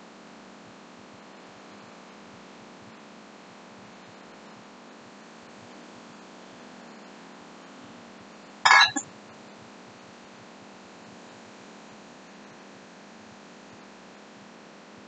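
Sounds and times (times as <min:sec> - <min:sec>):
glass jar clinking: 0:08.7 - 0:09.0.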